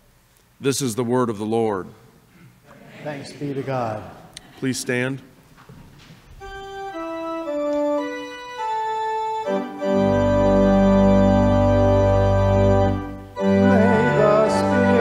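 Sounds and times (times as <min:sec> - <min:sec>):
church organ playing a hymn: 0:06.4 - 0:15.0.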